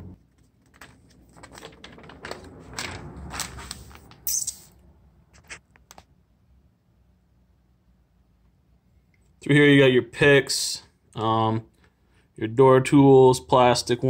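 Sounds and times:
paper flyer rustling and crinkling: 0:00.2 - 0:04.3.

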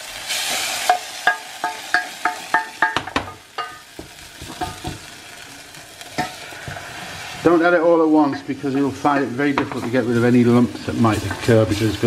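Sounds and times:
roux sizzling: 0:00.0 - 0:12.0
wooden spoon knocking metal pan: 0:00.9 - 0:05.1, 0:08.3 - 0:10.1.

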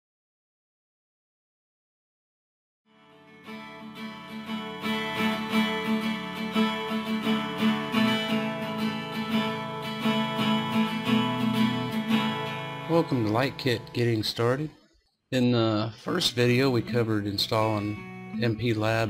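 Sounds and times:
theme music with strummed guitar: 0:02.9 - 0:14.6, 0:16.0 - 0:19.0.

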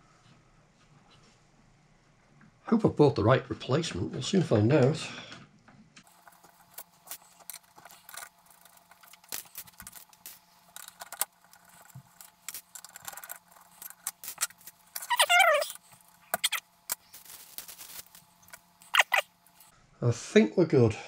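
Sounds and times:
wavering squeak: 0:14.4 - 0:16.6.

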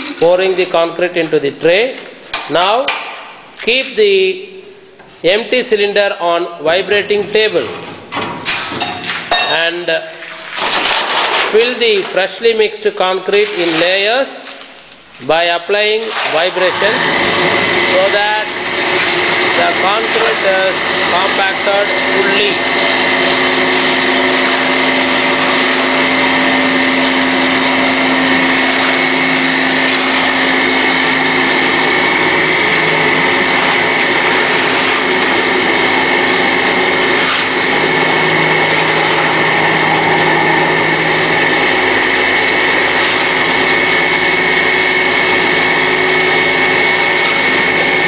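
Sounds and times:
vibrating table humming: 0:16.5 - 0:48.0.

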